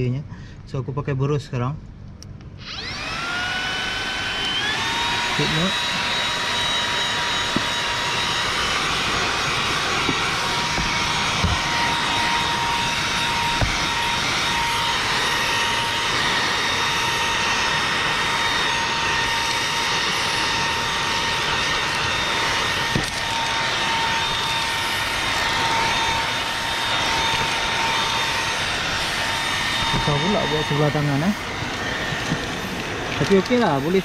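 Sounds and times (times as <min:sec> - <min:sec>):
vacuum motor whine: 0:02.4 - 0:34.0.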